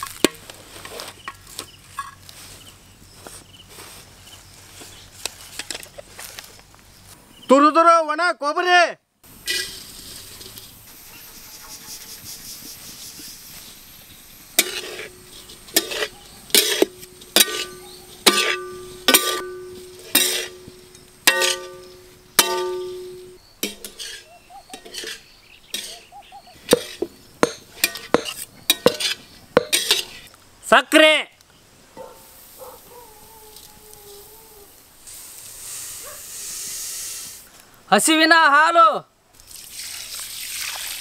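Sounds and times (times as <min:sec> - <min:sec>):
sharp metallic knocks: 0:14.6 - 0:24.0, 0:26.6 - 0:30.1.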